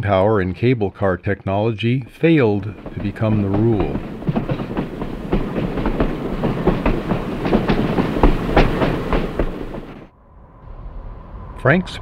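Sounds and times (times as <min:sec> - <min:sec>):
streetcar wheels clattering on rails: 0:02.4 - 0:10.1
streetcar rumble: 0:02.5 - 0:12.0.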